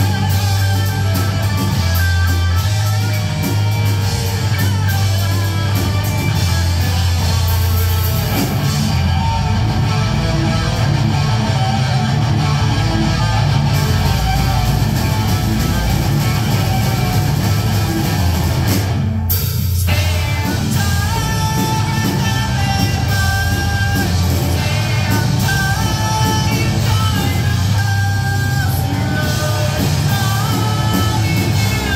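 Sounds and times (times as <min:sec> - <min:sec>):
bass guitar: 0:00.0 - 0:31.9
distorted electric guitars: 0:00.0 - 0:31.9
drums: 0:00.0 - 0:31.9
person singing: 0:19.9 - 0:31.9.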